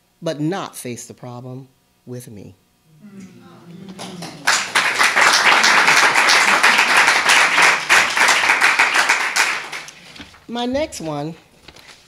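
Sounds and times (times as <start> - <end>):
person reading a poem: 2.9 - 4.9
audience applauding: 3.0 - 10.0.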